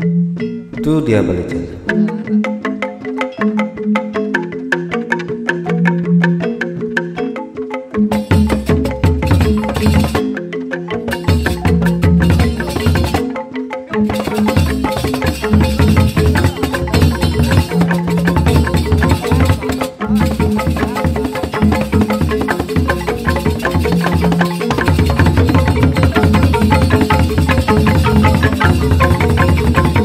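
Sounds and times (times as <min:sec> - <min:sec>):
bamboo xylophones interlocking: 0:00.0 - 0:30.0
low bass tones: 0:00.7 - 0:02.4.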